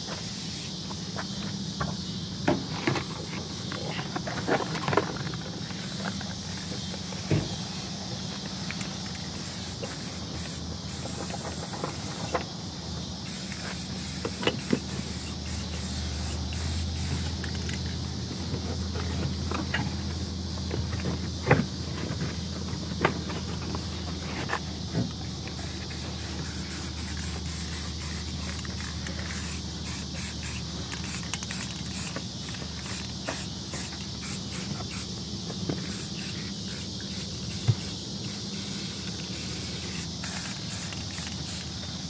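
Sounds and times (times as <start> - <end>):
spray paint can hissing: 0.1 - 0.8, 3.1 - 4.5, 5.7 - 12.4, 13.2 - 17.8, 25.6 - 35.2, 35.8 - 41.8.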